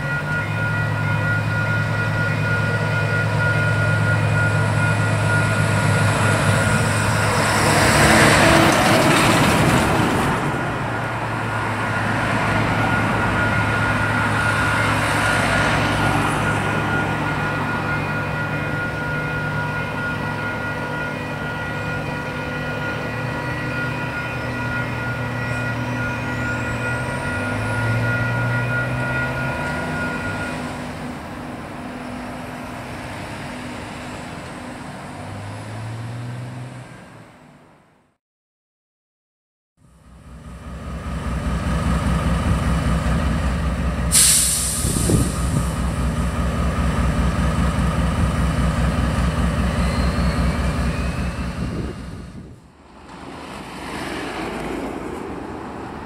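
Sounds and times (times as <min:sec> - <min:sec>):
level crossing alarm bells: 0:00.0 - 0:07.4, 0:11.4 - 0:31.0
railcar rushing past: 0:00.0 - 0:37.6, 0:40.0 - 0:56.0.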